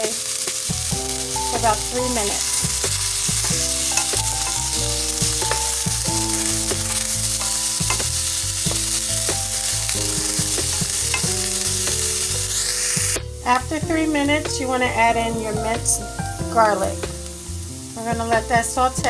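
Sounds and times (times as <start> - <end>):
vegetables sizzling in oil: 0.0 - 19.0.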